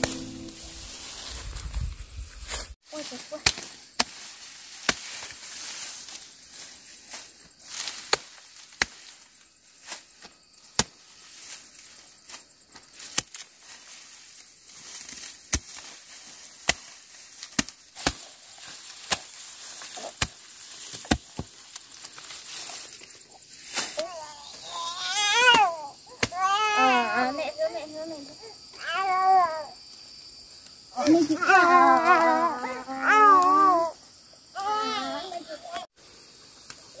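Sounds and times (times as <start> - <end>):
straw rustling: 0.0 - 25.0
sickle cutting rice stalks: 0.0 - 26.5, 30.5 - 33.8, 34.6 - 37.0.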